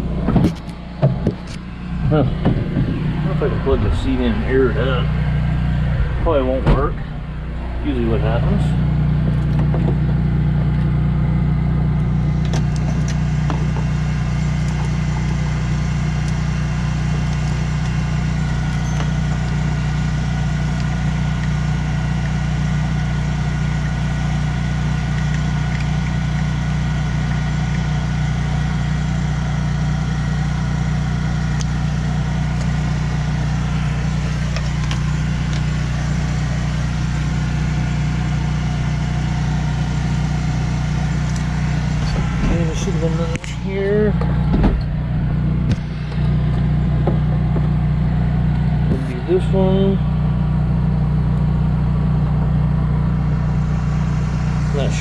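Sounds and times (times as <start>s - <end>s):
tractor engine idling: 0.0s - 55.0s.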